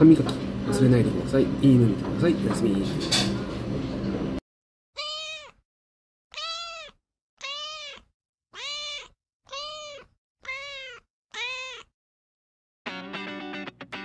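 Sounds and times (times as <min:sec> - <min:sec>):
kitten meowing: 0:05.0 - 0:05.6, 0:06.3 - 0:12.0.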